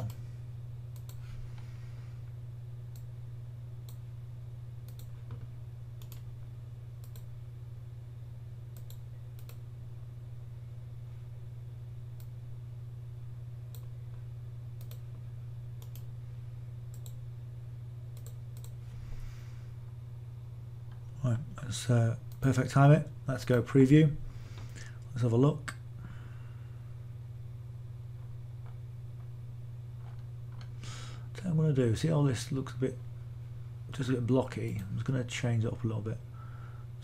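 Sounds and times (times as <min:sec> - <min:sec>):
steady low hum: 0:00.0 - 0:37.0
computer mouse clicks: 0:01.0 - 0:01.2, 0:04.9 - 0:06.3, 0:07.0 - 0:07.3, 0:08.8 - 0:09.6, 0:14.8 - 0:15.0, 0:15.8 - 0:16.1, 0:16.9 - 0:17.2, 0:18.2 - 0:18.8.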